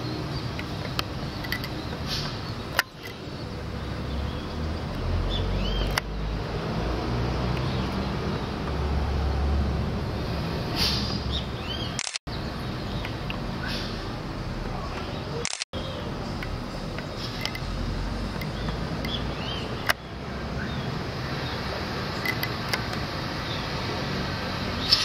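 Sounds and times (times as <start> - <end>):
sharp clicks: 0.5 - 3.2, 11.9 - 12.2, 15.4 - 15.7, 19.8 - 20.0, 22.2 - 23.0.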